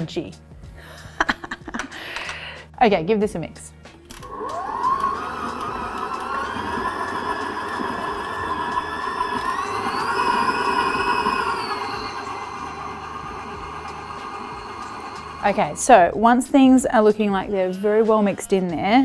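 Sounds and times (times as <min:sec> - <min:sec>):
stand mixer motor whine: 0:04.1 - 0:16.2.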